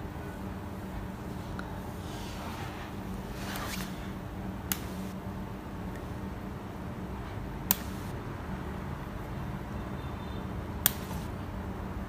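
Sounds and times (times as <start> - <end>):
steady low hum: 0.0 - 12.0
finger snaps: 7.7 - 8.1.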